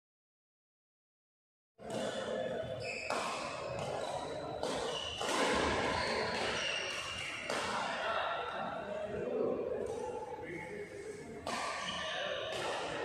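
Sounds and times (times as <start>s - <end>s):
racket hitting shuttlecock: 1.8s - 2.3s, 3.0s - 8.0s, 11.4s - 13.0s.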